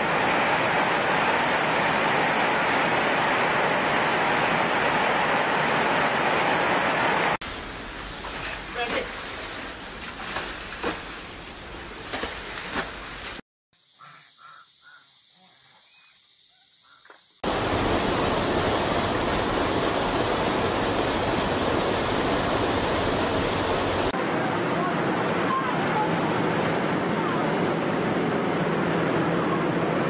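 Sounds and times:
water rushing down stairwell: 0:00.0 - 0:07.4, 0:17.4 - 0:30.0
water splashing and sloshing: 0:00.0 - 0:13.4.

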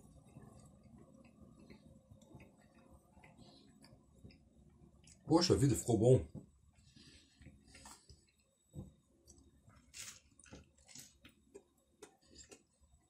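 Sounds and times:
chewing and biting sandwich: 0:00.2 - 0:04.5, 0:09.4 - 0:12.7.

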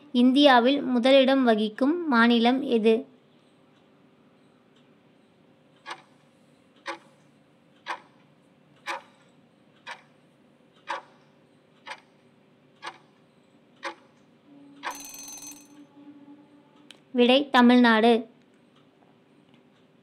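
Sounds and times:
countdown timer ticking: 0:13.8 - 0:15.9.

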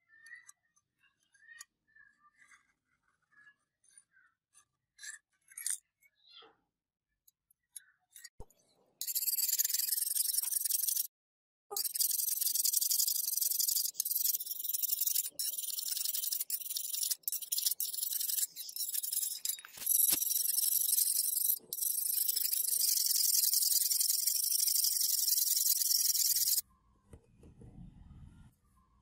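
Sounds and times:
steel file rasping on blade: 0:09.0 - 0:11.1, 0:11.7 - 0:26.6.

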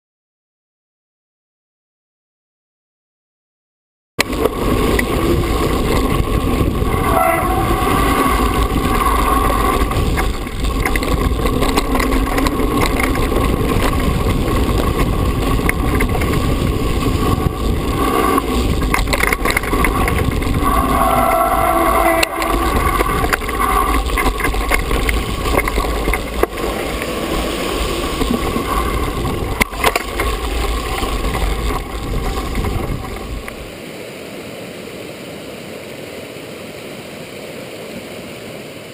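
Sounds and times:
bike knocks and rattles: 0:04.2 - 0:20.8, 0:21.4 - 0:33.6
tyres running over gravel: 0:04.2 - 0:33.7
wind buffeting microphone: 0:04.2 - 0:33.7
brief squealing tone: 0:07.0 - 0:08.6, 0:20.6 - 0:23.3.

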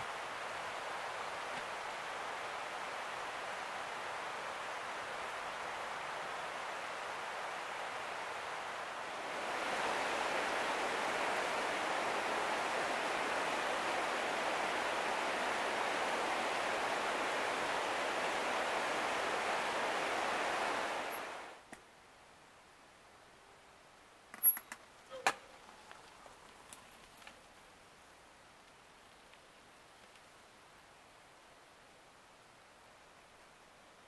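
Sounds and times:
creek water rushing over rocks: 0:00.0 - 0:21.6.

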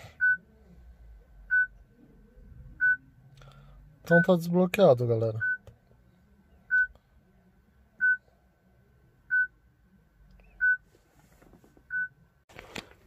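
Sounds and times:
car radio beeping: 0:00.2 - 0:00.5, 0:01.4 - 0:01.8, 0:11.9 - 0:12.2.

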